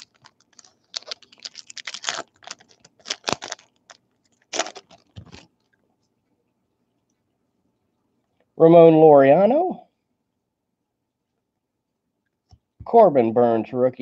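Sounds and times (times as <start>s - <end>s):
cards and wrapper rustling: 0.0s - 5.7s.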